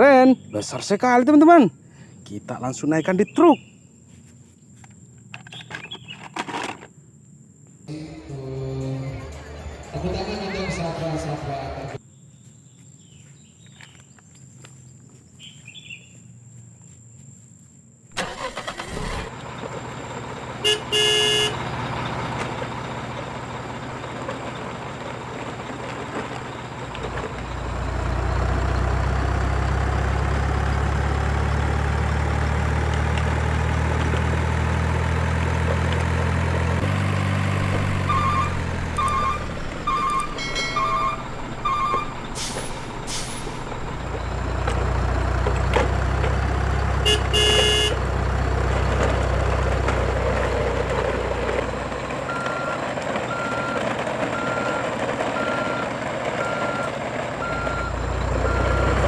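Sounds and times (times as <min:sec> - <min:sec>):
truck engine whine: 0:07.9 - 0:12.0, 0:18.1 - 0:59.0
deep engine rumble: 0:18.2 - 0:59.0
truck horn honk: 0:20.6 - 0:21.8, 0:36.8 - 0:43.9, 0:46.9 - 0:48.2.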